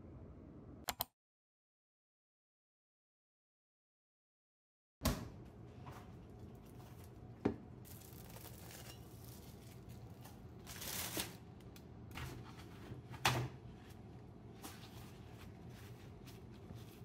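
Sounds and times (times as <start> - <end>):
paper towel rustling and tearing: 7.9 - 11.4.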